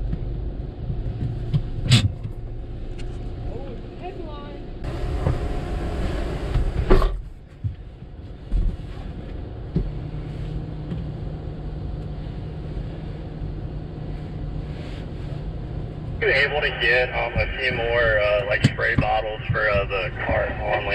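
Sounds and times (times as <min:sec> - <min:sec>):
steady low hum: 0:00.0 - 0:20.9
car engine idling: 0:09.9 - 0:20.9.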